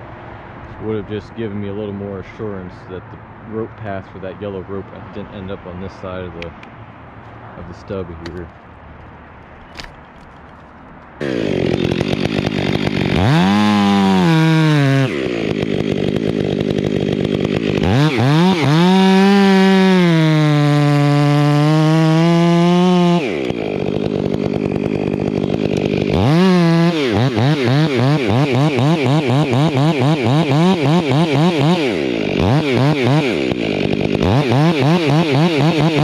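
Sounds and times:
chainsaw idling and revving: 8.0 - 8.5, 9.8 - 36.0.

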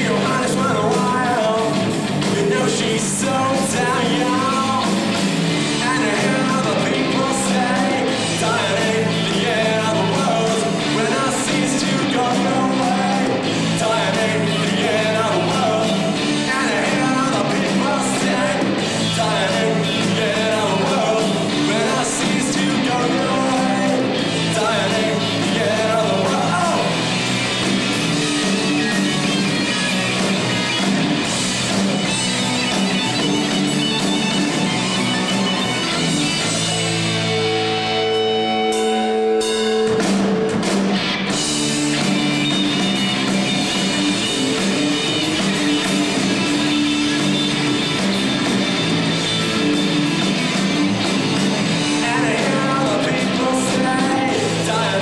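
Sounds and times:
lead vocal singing: 0.0 - 27.4, 51.3 - 55.0
bass guitar: 0.0 - 55.0
drum kit: 0.0 - 55.0
electric guitars: 0.0 - 55.0.

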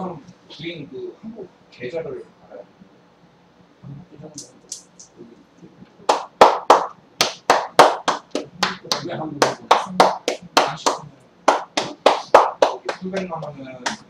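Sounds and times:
hands slapping a back: 6.1 - 14.0.

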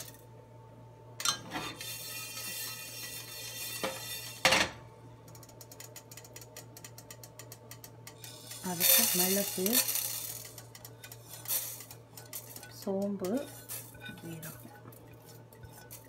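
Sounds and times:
seeds roasting in a pan: 0.0 - 16.0.

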